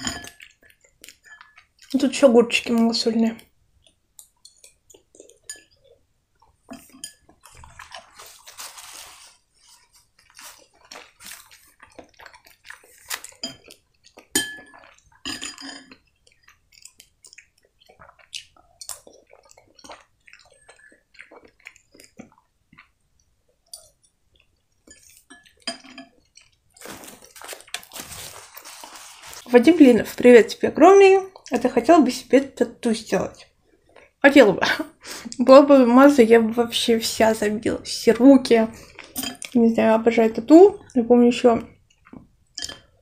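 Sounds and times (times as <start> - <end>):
chewing: 0.2 - 2.8, 3.4 - 29.6, 31.2 - 31.6, 33.4 - 34.2, 38.7 - 39.6, 41.6 - 43.0
spoon scraping glass bowl: 6.7 - 11.7
soup sipping: 26.8 - 29.5.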